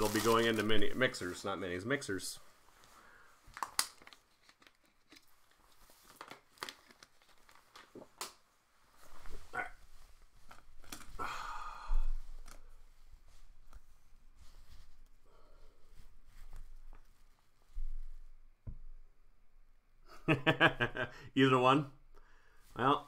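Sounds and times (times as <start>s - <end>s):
wrappers tearing and crinkling: 0.0s - 1.2s, 3.5s - 8.2s.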